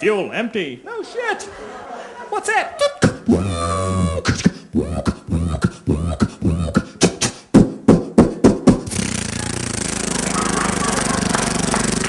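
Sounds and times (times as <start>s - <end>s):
man making mouth sound effects: 2.8s - 12.0s.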